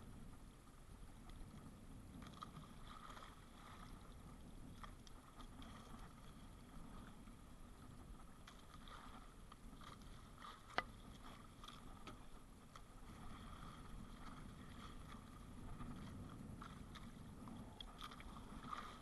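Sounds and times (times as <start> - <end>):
sea water washing around boat: 0.0 - 19.0
light ticks: 10.7 - 10.9.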